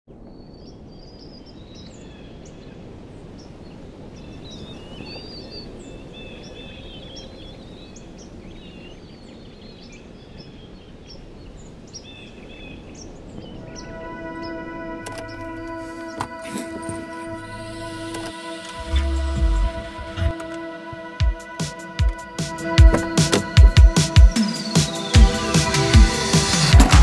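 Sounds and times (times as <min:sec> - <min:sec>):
songbirds chirping and trilling: 0:00.2 - 0:26.9
low rushing background: 0:13.0 - 0:27.0.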